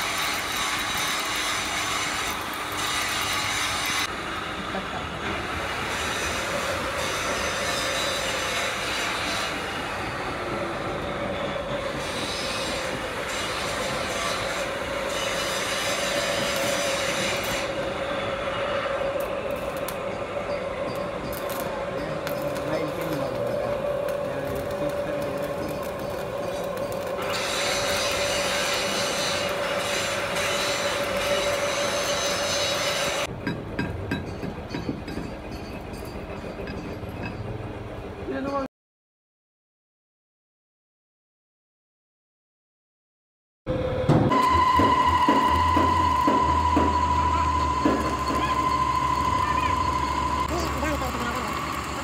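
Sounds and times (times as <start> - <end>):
workshop machine running: 0.0 - 38.5, 43.7 - 52.0
high squeal: 11.0 - 33.3, 43.7 - 52.0.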